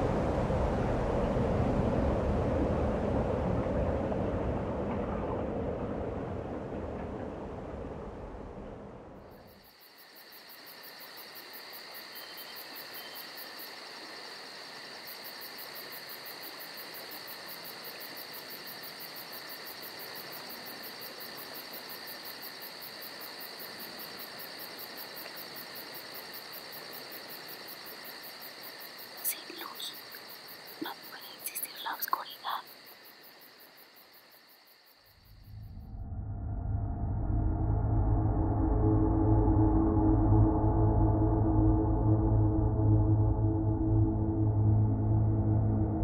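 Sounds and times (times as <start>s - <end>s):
low rumble: 0.0s - 9.4s, 35.4s - 46.0s
crickets chirring: 9.1s - 36.0s.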